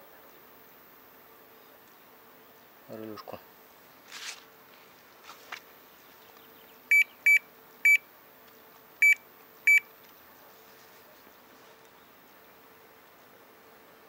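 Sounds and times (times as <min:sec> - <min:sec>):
short electronic beeps: 0:06.9 - 0:08.0, 0:09.0 - 0:09.8.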